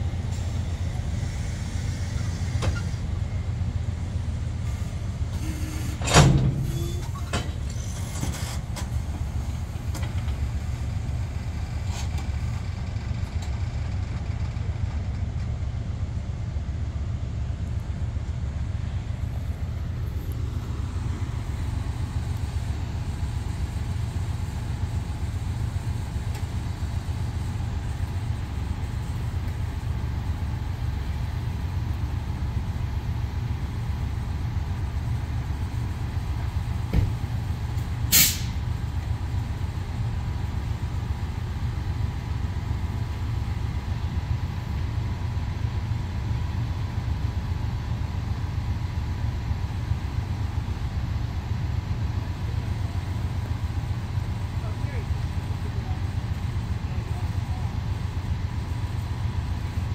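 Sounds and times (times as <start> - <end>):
diesel locomotive idling: 0.0 - 59.9
brief knock: 36.9 - 37.2
sharp hiss of released air: 38.1 - 38.6.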